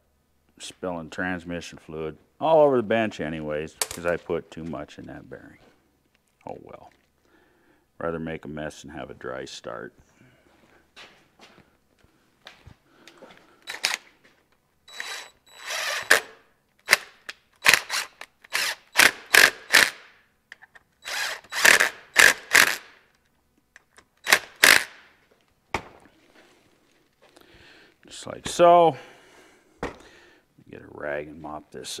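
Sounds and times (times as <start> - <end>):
cordless drill driving bolts: 13.6 - 14.0, 14.9 - 17.0, 17.6 - 20.0, 21.0 - 22.8, 24.2 - 24.9.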